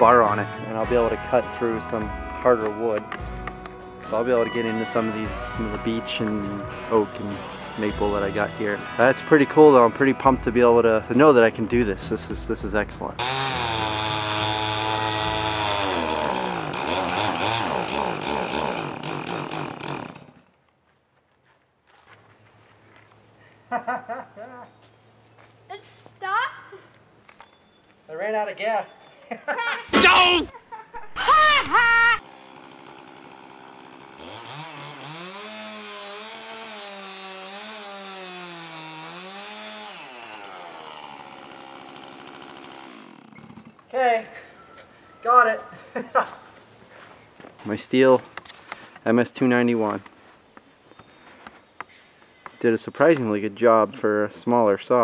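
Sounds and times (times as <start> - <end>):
chainsaw cutting log: 0.0 - 10.7, 13.0 - 20.6, 31.8 - 43.9.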